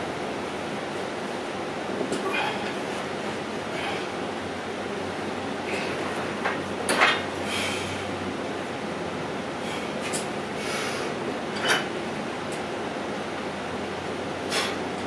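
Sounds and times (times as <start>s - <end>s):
air conditioner hiss: 0.0s - 15.0s
short forced breaths: 7.4s - 8.1s, 14.5s - 14.8s.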